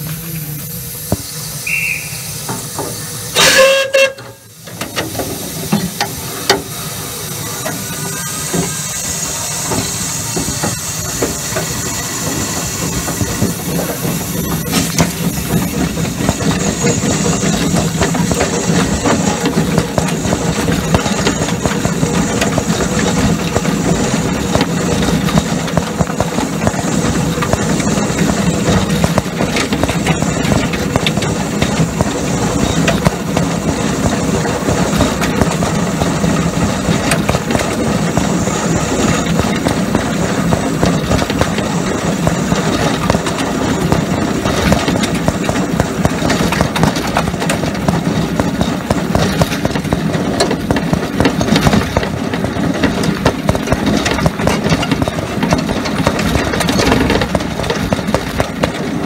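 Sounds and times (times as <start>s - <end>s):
steam locomotive hissing and working: 0.0s - 59.0s
steam whistle blast: 1.5s - 2.5s, 3.3s - 4.6s.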